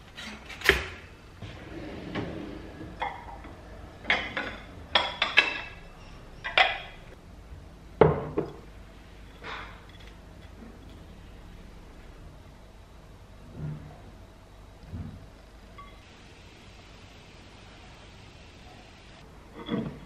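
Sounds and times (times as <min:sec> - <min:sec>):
ceramic dishes clinking: 0:02.9 - 0:07.1.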